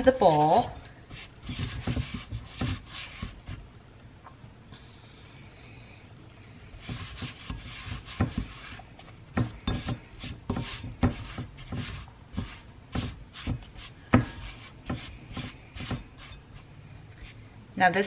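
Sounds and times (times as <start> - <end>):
hands patting dough: 0.0 - 3.7, 6.8 - 17.4.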